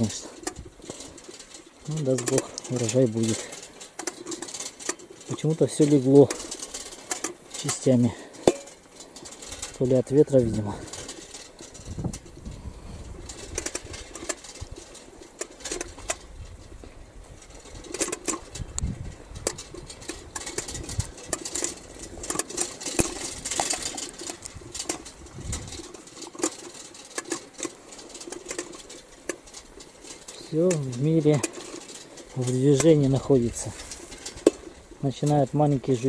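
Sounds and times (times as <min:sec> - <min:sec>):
bicycle clicks and rattles: 0:00.0 - 0:36.0
wind buffeting microphone: 0:09.4 - 0:14.9, 0:15.8 - 0:22.4, 0:23.0 - 0:26.1.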